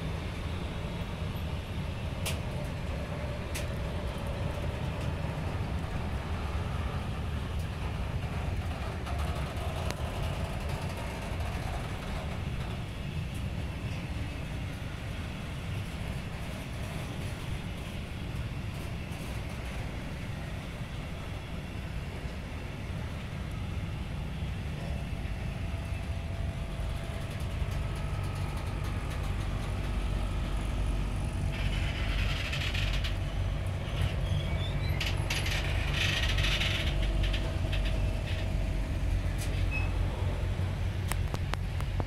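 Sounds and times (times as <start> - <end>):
train wheels rumbling on rails: 0.0 - 42.0
train brakes screeching: 33.9 - 38.5.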